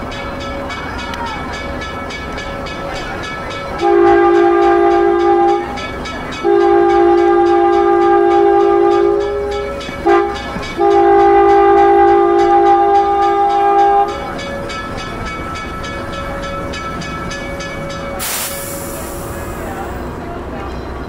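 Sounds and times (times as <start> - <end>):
moving train rumble: 0.0 - 21.0
train horn blasts: 3.8 - 14.2.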